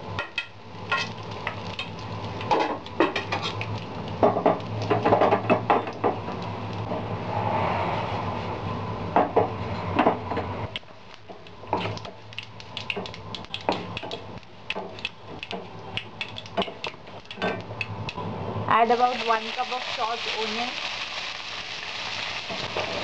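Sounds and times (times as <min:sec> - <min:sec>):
seeds spluttering in hot oil: 0:00.0 - 0:06.9, 0:18.8 - 0:23.0
low hum: 0:06.4 - 0:10.8.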